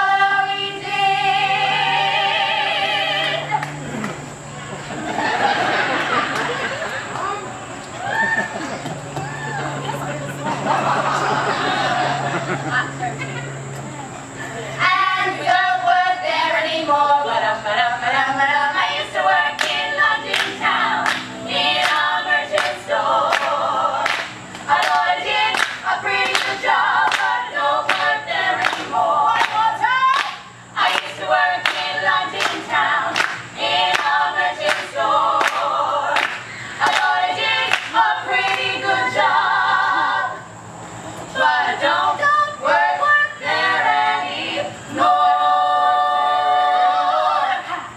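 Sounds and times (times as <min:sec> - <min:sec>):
women singing a cappella: 0:00.0 - 0:04.0, 0:14.8 - 0:40.6, 0:41.2 - 0:47.9.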